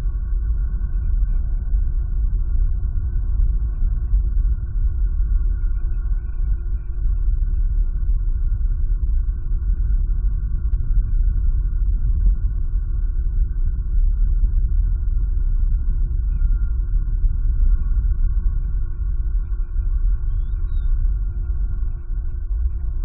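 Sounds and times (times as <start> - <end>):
faint constant hum: 0.0 - 23.0
steady low rumble: 0.0 - 23.0.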